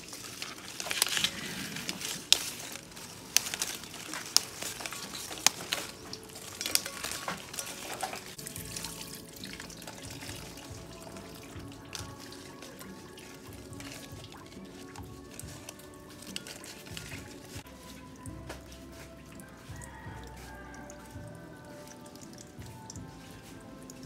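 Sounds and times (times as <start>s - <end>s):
leaf stems snapping: 0.0s - 17.6s
leaves rustling: 0.0s - 24.0s.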